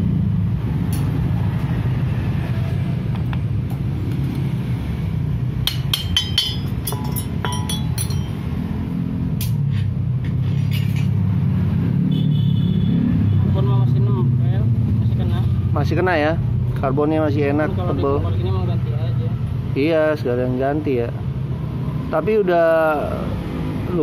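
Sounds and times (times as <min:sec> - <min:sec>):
small metal parts clinking: 0:05.7 - 0:08.4.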